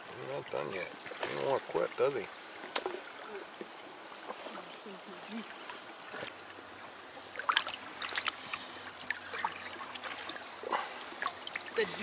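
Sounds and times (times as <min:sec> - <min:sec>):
stream trickling: 0:00.0 - 0:12.0
hand and fish splashing water: 0:07.3 - 0:12.0.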